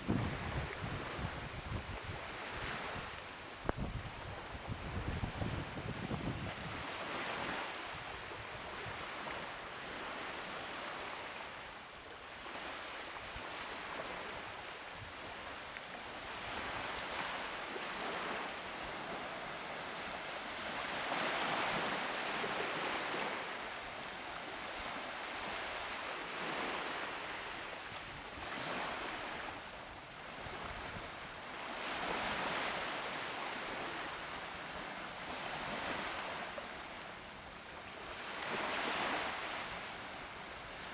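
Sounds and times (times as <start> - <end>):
small waves washing on sand: 0.0 - 40.9
short click: 7.4 - 7.8.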